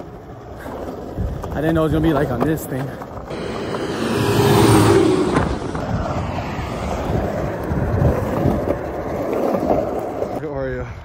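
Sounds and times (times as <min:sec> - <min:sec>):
skateboard wheels rolling on asphalt: 0:00.0 - 0:11.0
truck passing: 0:03.3 - 0:08.2
wind on microphone: 0:03.3 - 0:09.3.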